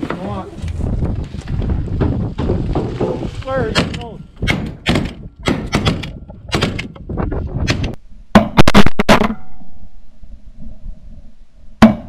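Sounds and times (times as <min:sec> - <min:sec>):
sharp crackling knocks: 0:00.7 - 0:09.3.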